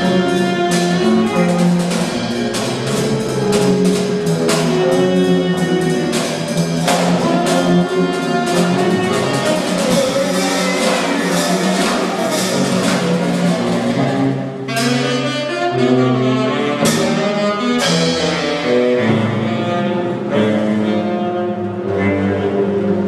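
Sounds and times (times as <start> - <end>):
percussion strikes: 0.0 - 15.4, 16.8 - 19.2
bowed electric bass: 0.0 - 23.0
drums: 0.0 - 23.0
saxophone: 0.0 - 23.0.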